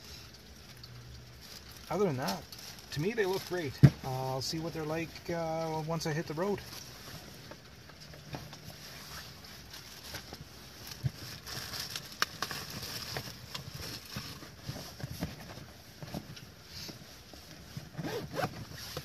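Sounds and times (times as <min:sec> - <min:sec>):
fabric bag rustling: 0:01.3 - 0:04.7, 0:08.2 - 0:19.0.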